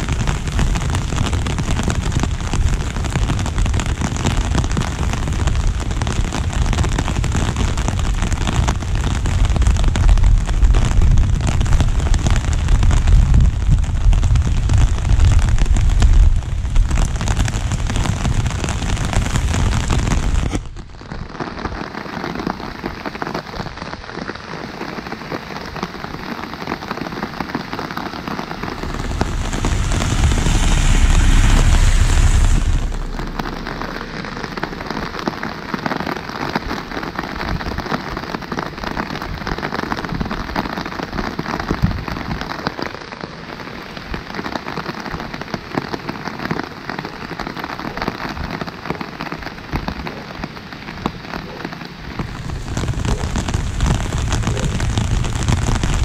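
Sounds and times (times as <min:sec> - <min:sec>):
rain pattering on umbrella: 0:00.0 - 0:56.0
rushing swell with low rumble: 0:27.8 - 0:37.2, 0:52.2 - 0:56.0.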